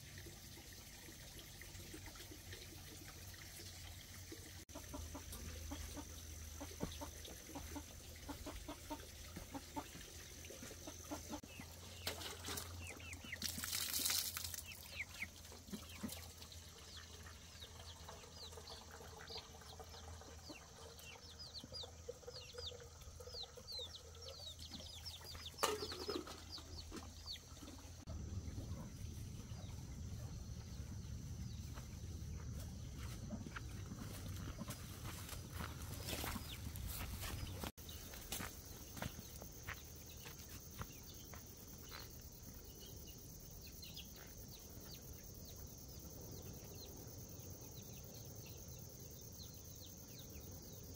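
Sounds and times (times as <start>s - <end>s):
chickens clucking: 4.7s - 13.8s, 14.5s - 16.6s, 17.3s - 30.4s.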